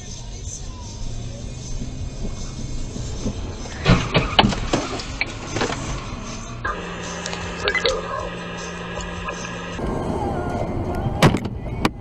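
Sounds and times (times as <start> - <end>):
car road and engine noise: 0.0 - 12.0
steady low hum: 6.2 - 9.8.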